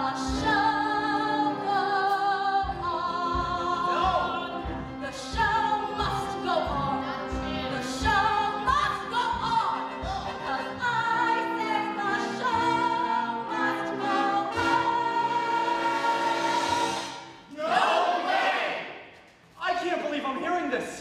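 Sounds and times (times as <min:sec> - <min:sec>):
woman singing with vibrato: 0:00.0 - 0:17.0
orchestra playing: 0:02.9 - 0:17.4.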